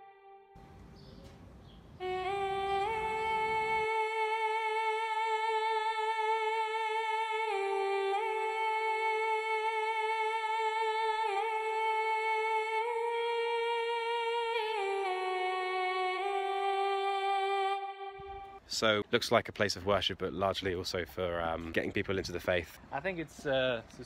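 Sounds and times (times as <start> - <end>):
slow wordless hum-like melody: 0.0 - 18.7.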